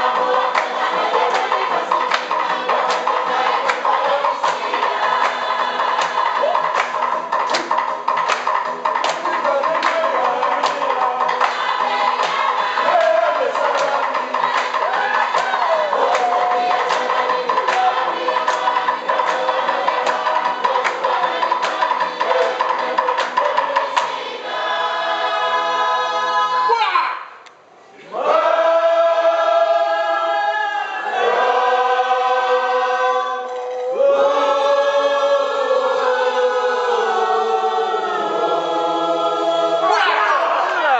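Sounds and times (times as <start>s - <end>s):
choir singing in harmony: 0.0s - 7.2s, 9.0s - 26.7s, 28.0s - 40.8s
rhythmic percussive clicks: 0.0s - 25.7s.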